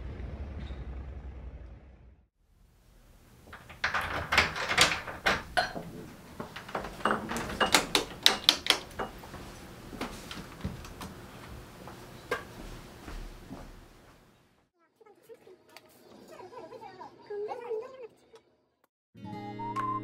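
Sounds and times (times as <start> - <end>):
glass door opening and shutting: 3.2 - 11.2
knocks and handling noises: 3.2 - 13.8.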